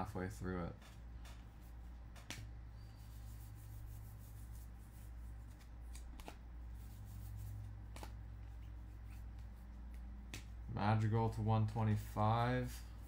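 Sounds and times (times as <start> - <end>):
cards rustling: 5.0 - 10.6
cards clicking: 5.5 - 6.4, 7.9 - 8.2.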